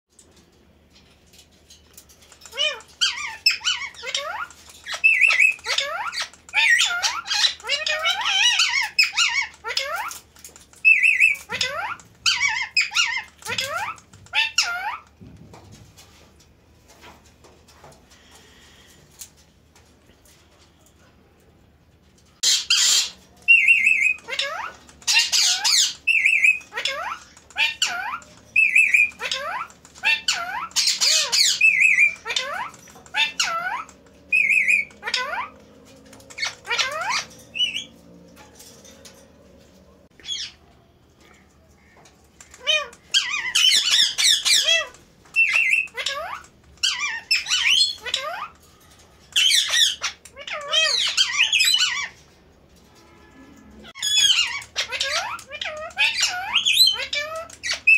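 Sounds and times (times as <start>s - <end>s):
parakeets squawking: 2.2s - 15.2s, 22.3s - 40.6s, 41.8s - 52.4s, 53.8s - 57.9s.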